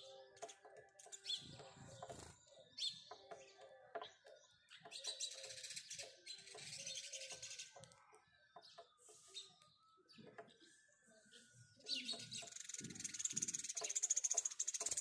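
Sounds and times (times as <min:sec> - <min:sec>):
sparrows chirping: 0:00.0 - 0:15.0.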